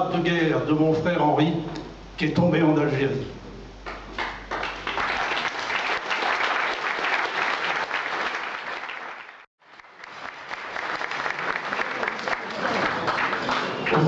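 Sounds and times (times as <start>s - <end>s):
audience applauding: 3.9s - 14.0s.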